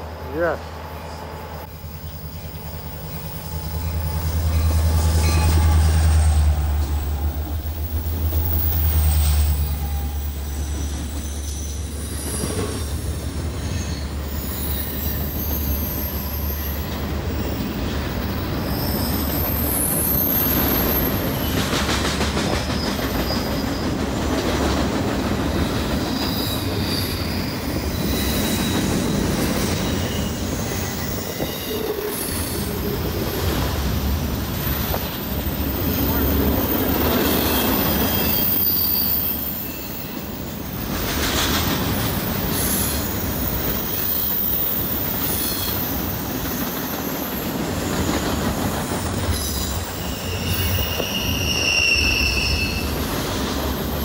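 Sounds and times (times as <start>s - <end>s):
diesel locomotive engine drone: 0.0s - 23.2s, 23.9s - 50.9s
train wheels rumbling on rail: 0.0s - 54.0s
high wheel squeal: 0.3s - 21.6s, 25.6s - 40.8s, 42.1s - 48.1s, 49.0s - 54.0s.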